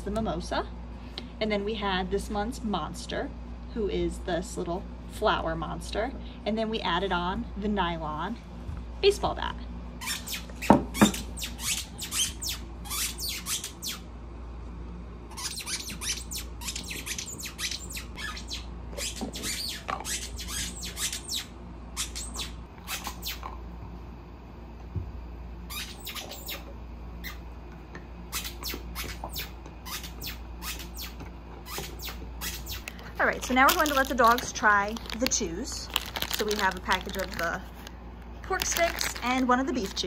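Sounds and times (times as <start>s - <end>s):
squeaky dog toy squeaking: 10.0s - 14.0s, 15.3s - 23.4s, 25.7s - 26.6s, 28.3s - 32.8s.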